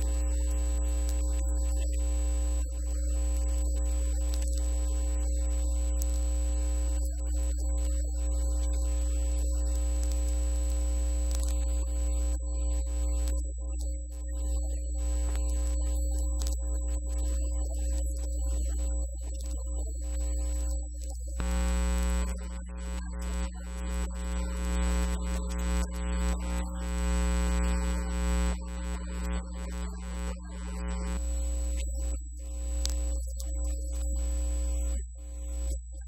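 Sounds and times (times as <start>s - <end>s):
low hum: 21.4s - 31.5s.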